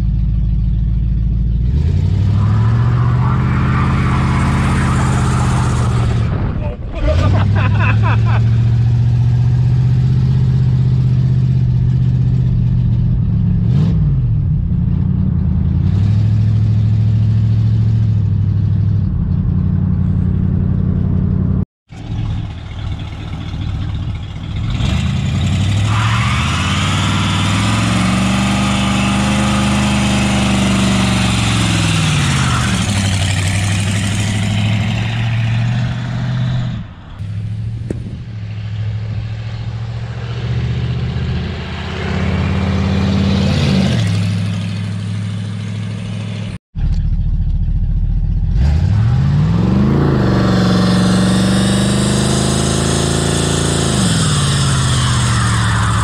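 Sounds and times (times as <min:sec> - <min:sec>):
car engine running: 0:16.4 - 0:35.9, 0:44.2 - 0:49.6.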